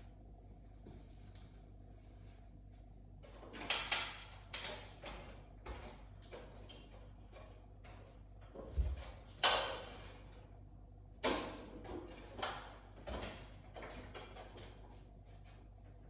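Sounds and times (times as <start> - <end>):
handling noises on metal stepladder: 3.2 - 10.5, 11.2 - 16.0.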